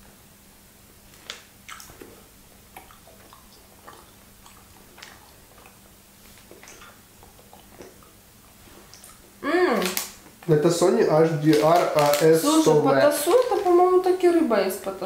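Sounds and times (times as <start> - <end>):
faint steady hum: 0.0 - 15.0
chewing dried fish snacks: 1.1 - 10.5, 11.3 - 12.4.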